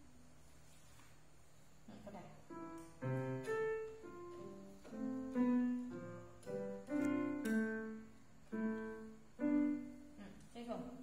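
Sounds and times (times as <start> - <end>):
electronic keyboard piano notes: 2.5 - 10.4.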